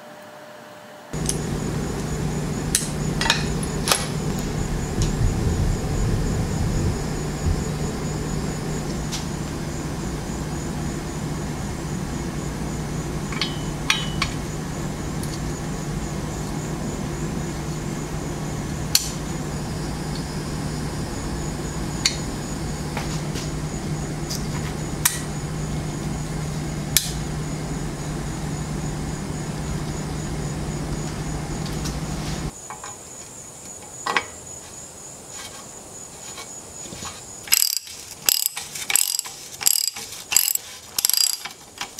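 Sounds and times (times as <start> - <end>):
steady machine hum: 0.0 - 32.5
metallic clicks of hand tools: 37.5 - 41.9.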